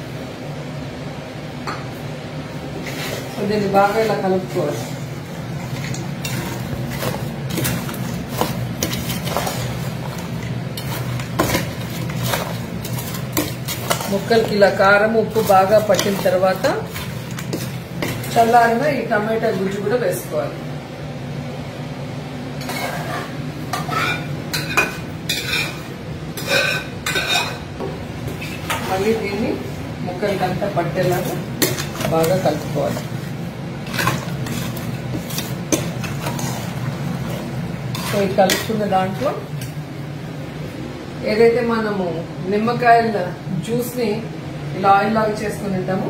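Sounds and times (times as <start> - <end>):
steady low hum: 0.0 - 46.0
ladle scraping steel bowl: 5.6 - 18.6, 22.6 - 27.6, 28.3 - 29.2, 31.0 - 38.9.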